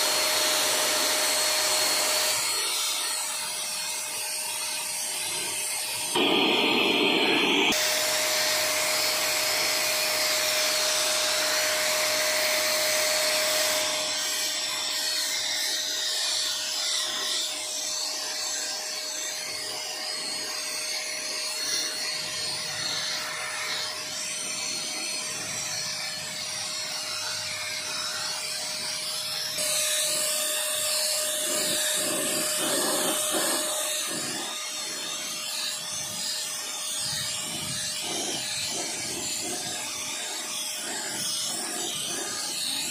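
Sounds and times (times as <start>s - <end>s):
electric paint sprayer motor whine: 0.0s - 42.9s
hiss of paint spray: 5.2s - 11.6s, 29.6s - 42.9s.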